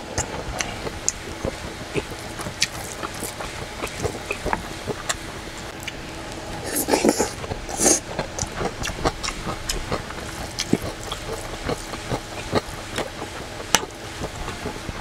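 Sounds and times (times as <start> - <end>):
wet chewing and lip-smacking: 0.0 - 15.0
slurp of noodles: 6.6 - 8.0.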